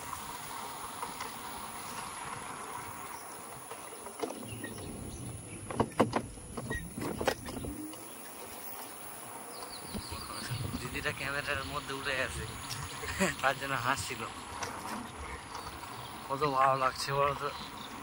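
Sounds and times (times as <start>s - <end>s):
wind and road noise: 0.0s - 18.0s
sharp knocks and rattles: 3.7s - 8.0s.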